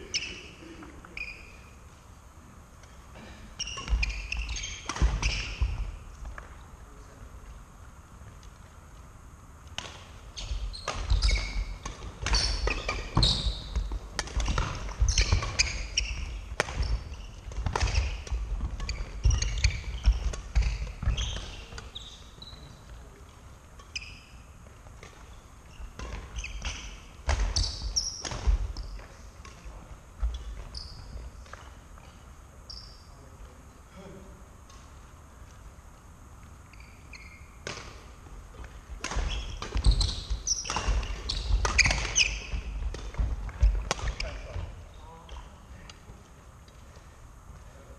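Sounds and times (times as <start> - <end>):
shoes squeaking: 0.0 - 2.0, 3.6 - 6.6, 9.8 - 33.3, 36.4 - 46.2
racket hitting shuttlecock: 3.7 - 5.8, 10.8 - 21.9, 25.9 - 28.8, 37.6 - 44.5.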